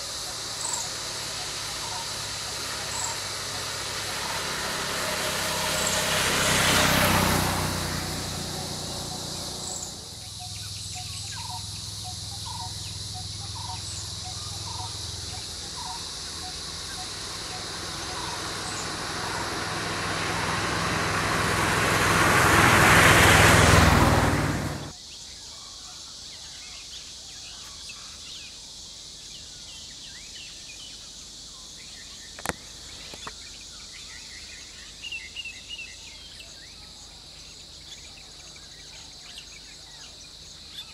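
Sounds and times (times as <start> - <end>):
van engine and tyre noise: 0.0 - 25.0
insects droning: 0.0 - 40.9
bird chirps: 0.3 - 6.2, 8.4 - 21.6.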